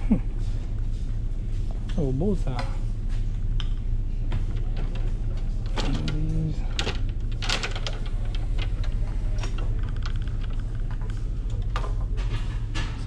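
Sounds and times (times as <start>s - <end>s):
steady low hum: 0.0s - 13.0s
clicks and knocks of goods handled: 3.5s - 13.0s.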